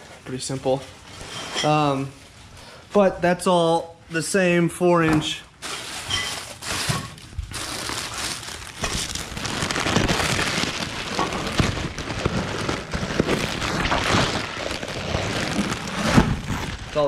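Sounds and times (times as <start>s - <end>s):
plastic bag crinkling: 5.6s - 17.0s.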